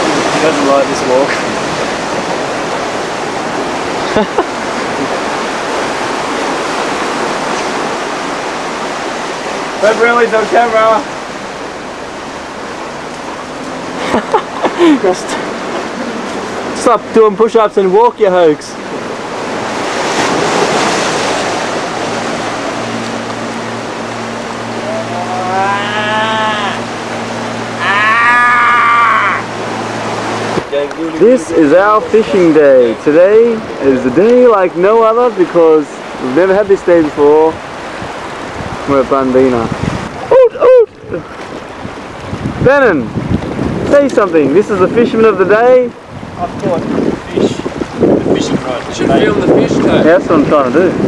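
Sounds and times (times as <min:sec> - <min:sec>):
surf washing over rocks: 0:00.0 - 0:51.0
long drawn-out vocal call: 0:24.7 - 0:29.7.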